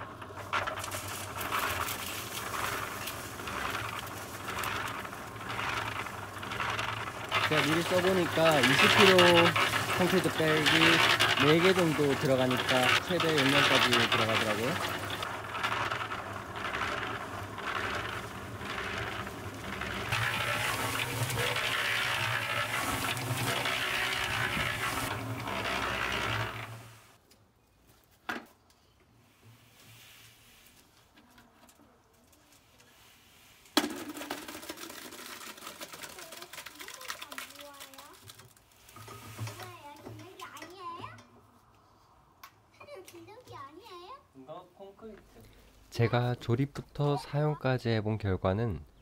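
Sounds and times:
small clicks and rattles: 0.0 - 26.9, 33.9 - 41.3
dry concrete mix pouring: 0.0 - 27.2, 33.6 - 40.8
electric cement mixer humming: 0.0 - 27.2.

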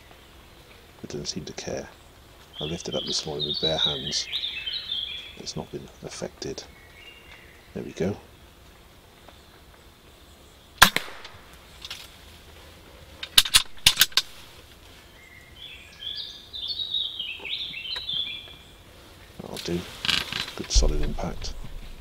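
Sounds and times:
air rifle shot crack: 10.8 - 11.5.

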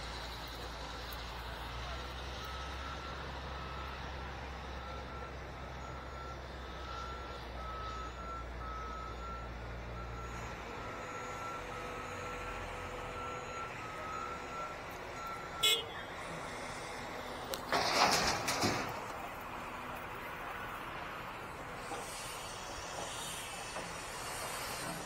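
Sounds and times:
engine rumbling: 0.0 - 25.0
backup alarm beeping: 13.0 - 16.0.

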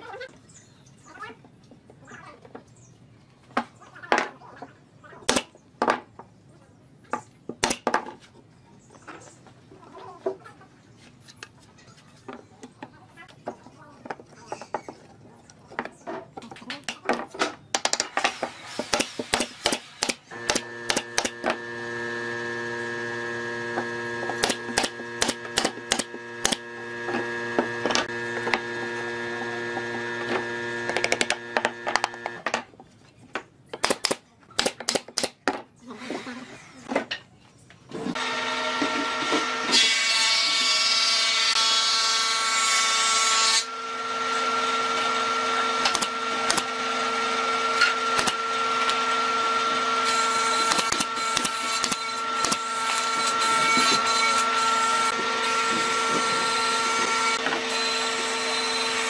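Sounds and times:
power tool motor running: 20.0 - 32.4, 43.7 - 59.0
high-whining power tool: 20.3 - 32.4, 43.6 - 59.0.

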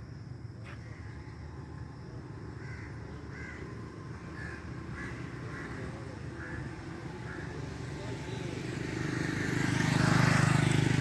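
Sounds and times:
crows cawing: 2.6 - 7.6.

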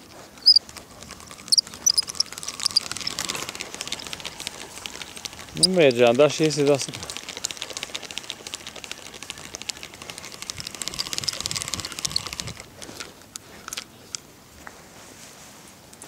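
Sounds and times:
fishing reel ticking: 0.0 - 13.9.

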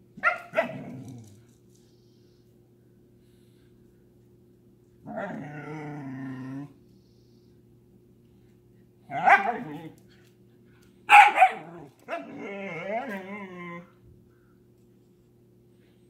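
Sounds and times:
faint steady hum: 0.0 - 16.0
dog barking: 0.2 - 0.8, 9.1 - 9.8, 11.1 - 12.3.

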